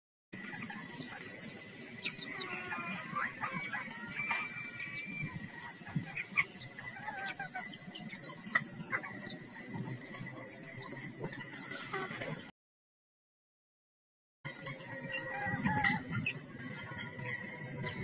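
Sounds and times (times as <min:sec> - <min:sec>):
small birds chirping: 0:00.4 - 0:12.5, 0:14.5 - 0:18.0
junglefowl clucking and calling: 0:02.2 - 0:05.3, 0:06.0 - 0:09.3, 0:14.7 - 0:16.4.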